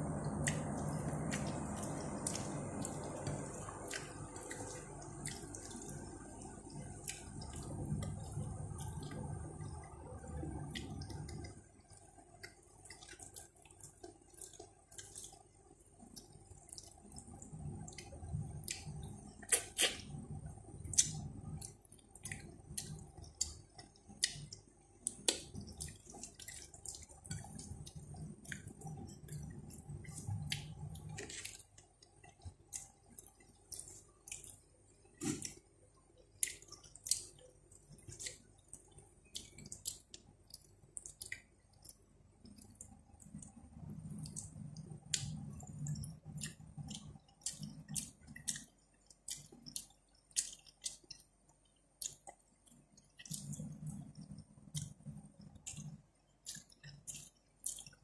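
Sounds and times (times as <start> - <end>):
low chewing rumble: 0.0 - 58.0
wet mouth clicks and smacks: 16.0 - 20.2, 20.9 - 34.6, 36.4 - 58.0.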